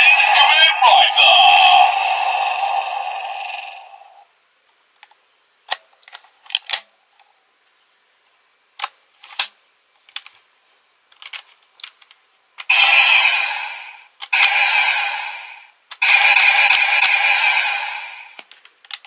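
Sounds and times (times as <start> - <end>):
toy electronic sound effect: 0.0 - 4.2, 12.7 - 18.4
plastic toy clicks and snaps: 5.0 - 6.9, 8.8 - 10.4, 11.1 - 12.9, 18.4 - 19.0.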